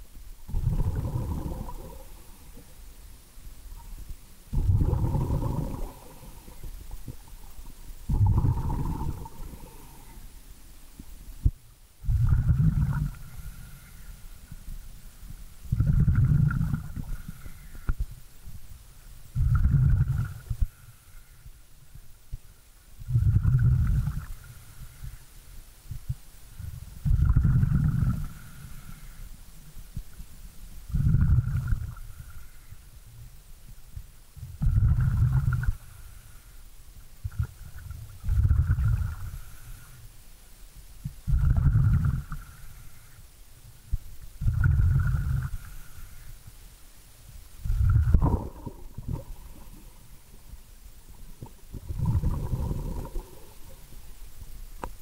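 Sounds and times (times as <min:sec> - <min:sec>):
underwater exhaled bubbles: 0:00.5 - 0:02.8, 0:03.7 - 0:10.4, 0:12.0 - 0:14.7, 0:15.6 - 0:18.0, 0:19.3 - 0:20.9, 0:23.0 - 0:25.2, 0:26.6 - 0:29.2, 0:30.9 - 0:32.5, 0:34.4 - 0:36.0, 0:37.2 - 0:40.0, 0:41.0 - 0:42.8, 0:44.4 - 0:46.1, 0:47.6 - 0:50.5, 0:51.1 - 0:55.0.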